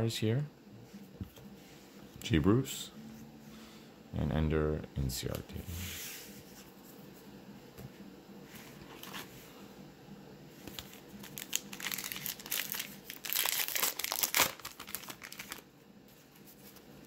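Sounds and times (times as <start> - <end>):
card pack wrapper crinkling and ripping: 10.7 - 15.7.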